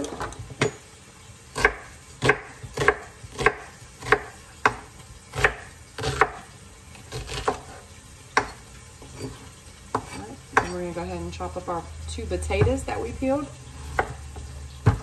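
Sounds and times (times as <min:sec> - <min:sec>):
knife chopping on wooden board: 0:01.6 - 0:06.5, 0:07.1 - 0:07.8, 0:08.4 - 0:10.7, 0:13.9 - 0:15.0.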